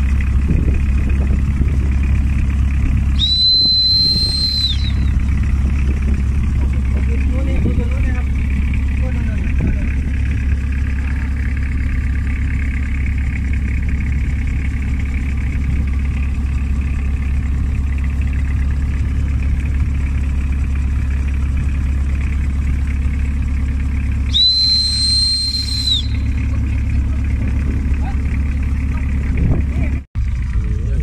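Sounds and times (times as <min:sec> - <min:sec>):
boat engine running: 0:00.0 - 0:31.0
high steady whistle: 0:03.2 - 0:05.2, 0:24.2 - 0:26.5.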